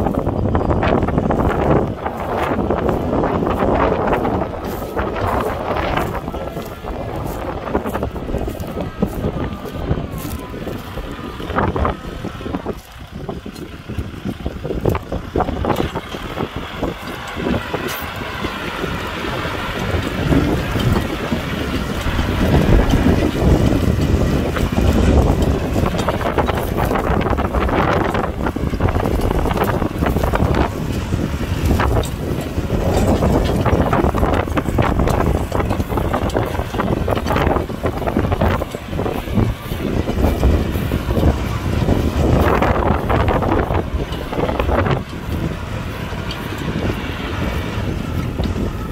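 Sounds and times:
tractor diesel engine running: 0.0 - 48.9
wind buffeting microphone: 0.0 - 48.9.

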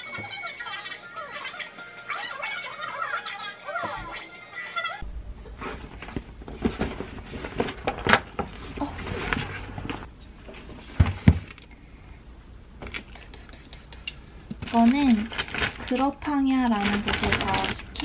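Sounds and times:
tote bag rustling: 16.7 - 18.0.

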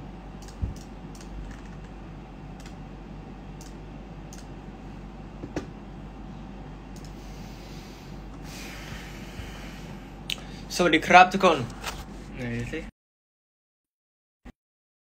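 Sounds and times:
steady low hum: 0.0 - 12.9
computer keyboard clicks: 0.4 - 2.0, 2.6 - 2.8, 3.6 - 4.5.

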